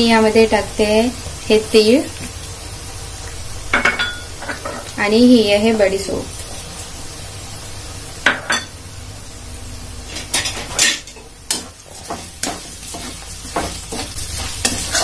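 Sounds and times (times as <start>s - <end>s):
spices sizzling in hot oil: 0.0s - 15.0s
spatula scraping metal pan: 12.4s - 15.0s.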